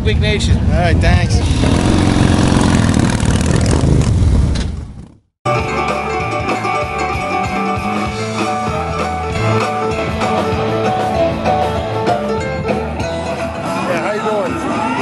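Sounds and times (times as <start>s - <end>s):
rock music with electric guitars: 5.5s - 15.0s.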